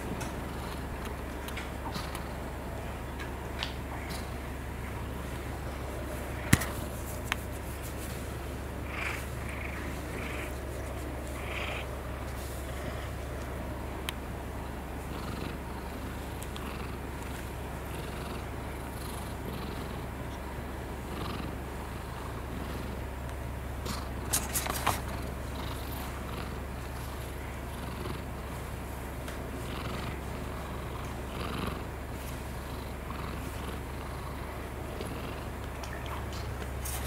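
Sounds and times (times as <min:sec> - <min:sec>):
cat purring: 0:08.8 - 0:13.2, 0:14.7 - 0:20.1, 0:21.0 - 0:23.0, 0:25.0 - 0:29.0, 0:29.6 - 0:36.2.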